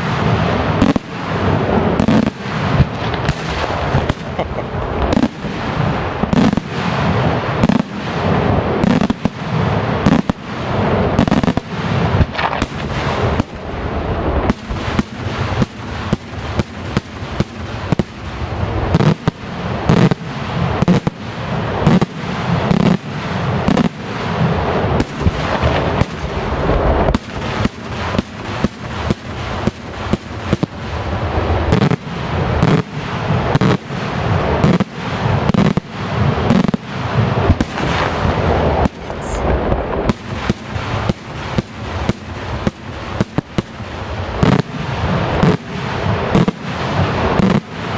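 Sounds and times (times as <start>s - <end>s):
crackling rumble: 0.0s - 47.9s
firework shells bursting: 25.0s - 47.9s.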